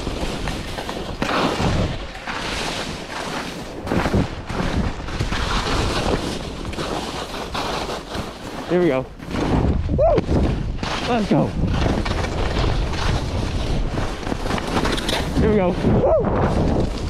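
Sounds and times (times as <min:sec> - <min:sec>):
skis scraping over snow: 0:00.0 - 0:17.0
wind buffeting microphone: 0:09.1 - 0:17.0.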